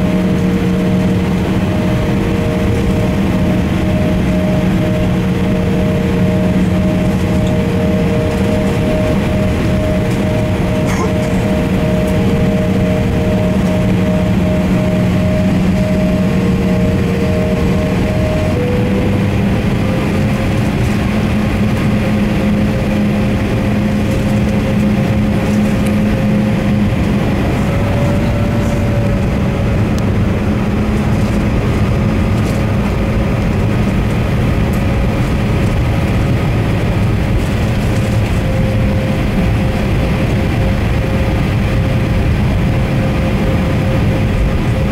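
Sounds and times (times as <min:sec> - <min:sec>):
jet engine rumble: 0:00.0 - 0:44.9
jet engine whining tones: 0:00.0 - 0:44.9.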